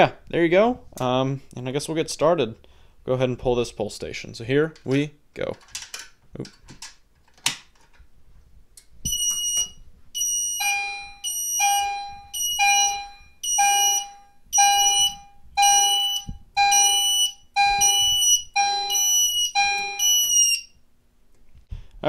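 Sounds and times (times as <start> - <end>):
electronic fire alarm chime: 9.1 - 20.8.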